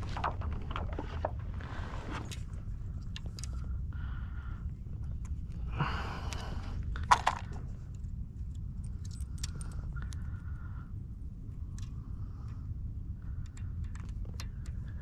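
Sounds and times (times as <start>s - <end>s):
low rumble: 0.0s - 15.0s
small ticks: 11.7s - 15.0s.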